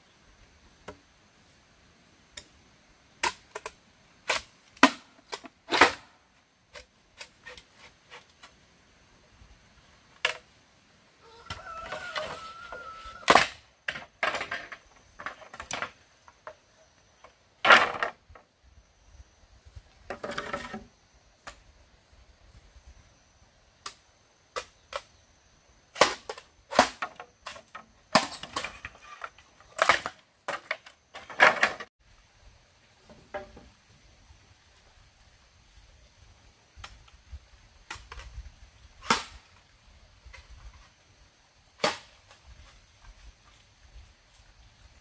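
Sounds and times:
machete striking bamboo: 26.0 - 28.7, 41.8 - 42.1
bamboo splitting rasping crack: 26.0 - 31.6, 41.8 - 42.4.

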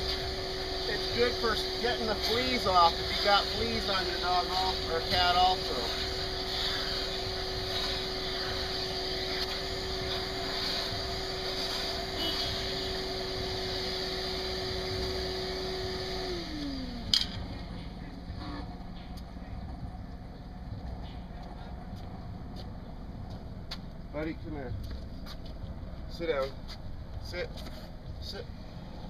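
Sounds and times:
shop vacuum whining: 0.0 - 19.3.

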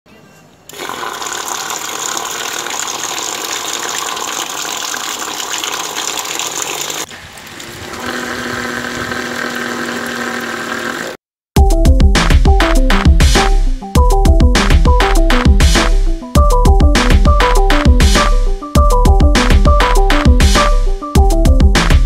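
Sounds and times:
water gushing and spraying: 0.7 - 11.2
small motor whine: 7.6 - 11.2.

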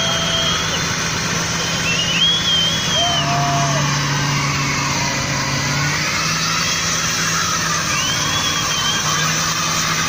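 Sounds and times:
car engine at high revs: 0.0 - 10.0
tyres spinning on road: 0.0 - 10.0
wavering high squeal: 0.0 - 10.0.

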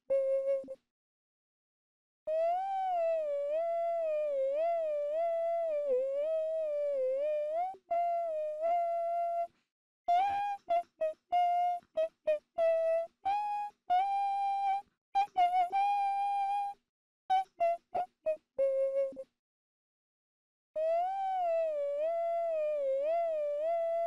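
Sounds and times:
high voice humming: 0.0 - 0.8, 2.3 - 9.5, 20.8 - 24.0.

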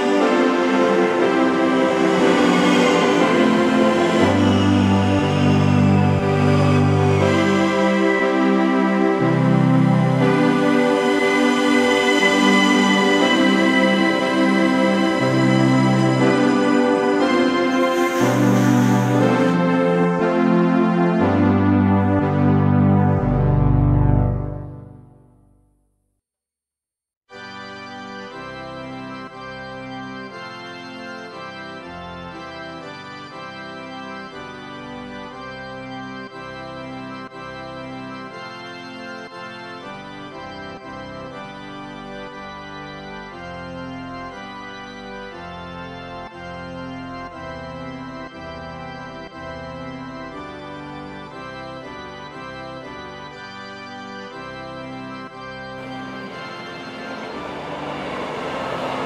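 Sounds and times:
organ playing sustained chords: 0.0 - 25.1, 27.4 - 59.0
train noise: 17.8 - 19.7, 55.8 - 59.0.

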